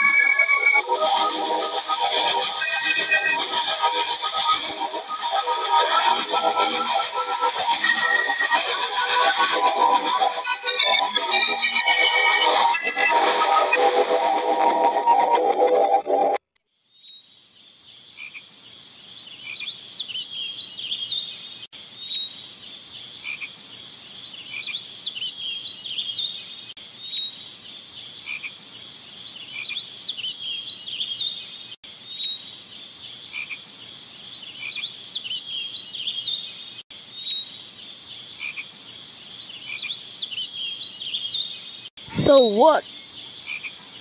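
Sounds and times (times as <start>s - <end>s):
frogs chirping: 17.3s - 21.2s, 21.8s - 30.8s, 31.5s - 44.0s.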